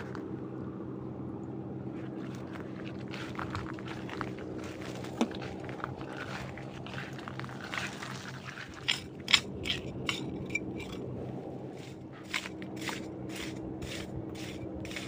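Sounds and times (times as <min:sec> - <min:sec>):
boat engine droning: 0:00.0 - 0:15.0
crunching and crackling: 0:02.0 - 0:13.7.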